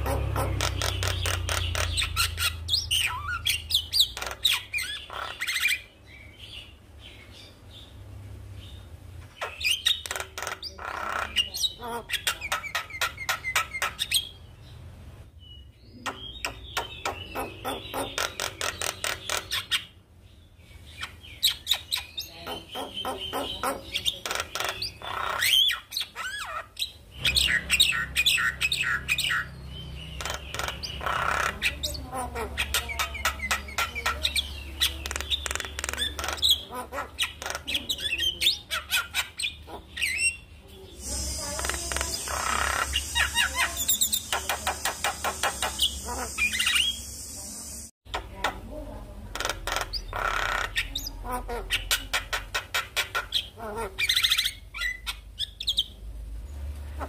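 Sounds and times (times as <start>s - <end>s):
bird singing with clicks and whistles: 15.5s - 19.9s, 21.0s - 32.0s, 41.0s - 48.3s.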